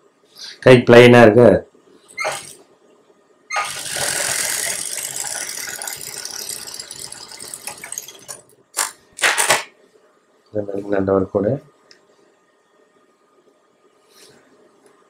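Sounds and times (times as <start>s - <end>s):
sewing machine stitching: 2.2s - 2.6s, 3.5s - 8.4s.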